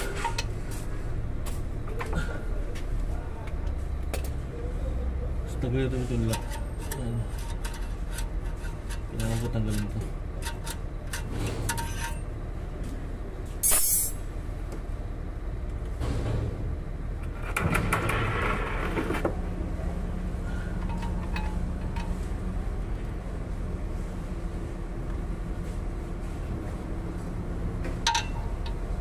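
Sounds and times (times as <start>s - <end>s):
sharp metallic clank: 13.6s - 14.2s
low engine hum: 18.8s - 29.0s.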